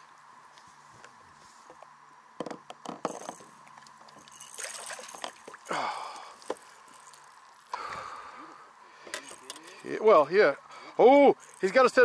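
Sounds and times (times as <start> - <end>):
water dripping: 4.5 - 8.1
water splashing: 4.5 - 8.2.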